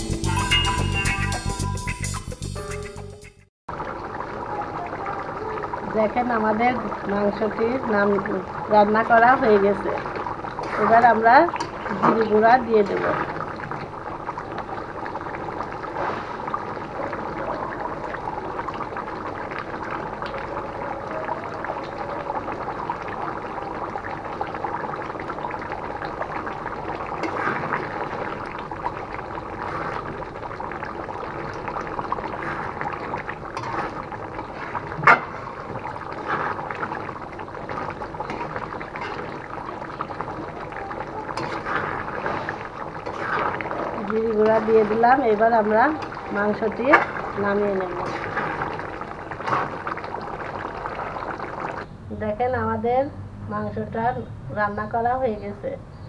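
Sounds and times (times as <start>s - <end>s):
curry simmering and bubbling: 3.7s - 52.4s
spatula stirring in pan: 8.7s - 16.5s, 26.1s - 51.8s.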